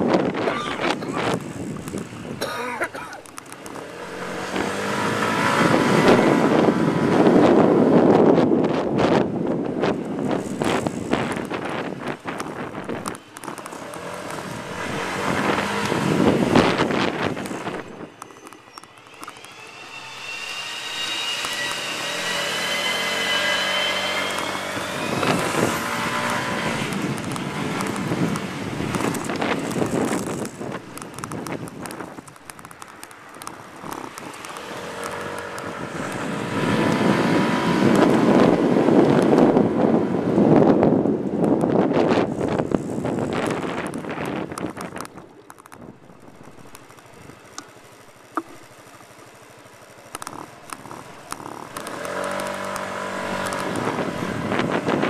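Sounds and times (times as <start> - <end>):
rushing noise: 0.0 - 39.5
street noise: 0.0 - 55.0
vehicle engine accelerating: 3.2 - 55.0.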